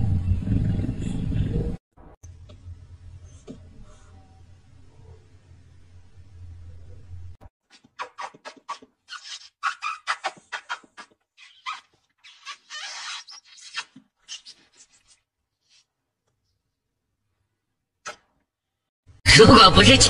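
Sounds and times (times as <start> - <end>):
low hum: 0.0 - 7.5
smacking kisses: 7.7 - 15.2, 18.0 - 18.4.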